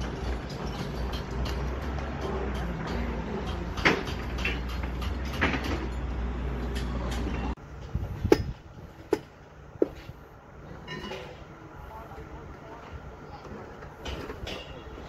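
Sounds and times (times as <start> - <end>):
sharp metallic clanks: 0.0 - 7.5, 14.0 - 15.0.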